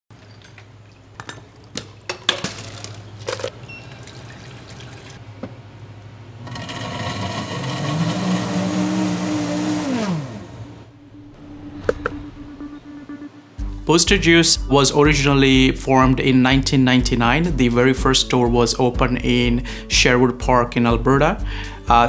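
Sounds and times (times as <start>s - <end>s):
countertop blender running: 6.4s - 10.9s.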